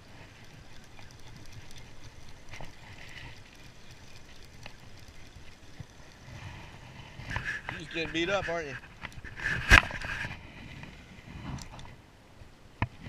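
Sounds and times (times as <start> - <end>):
small clicks: 0.0 - 6.6, 10.8 - 11.9
fishing reel whirring: 0.0 - 12.0.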